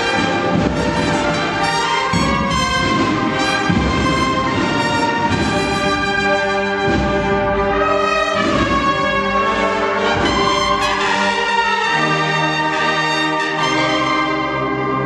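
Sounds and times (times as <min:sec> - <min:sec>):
drum strokes: 0:00.0 - 0:11.6
brass band playing a march: 0:00.0 - 0:15.0.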